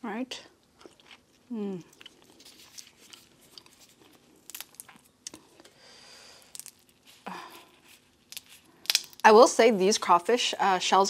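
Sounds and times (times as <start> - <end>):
crawfish shells cracking: 1.0 - 9.3.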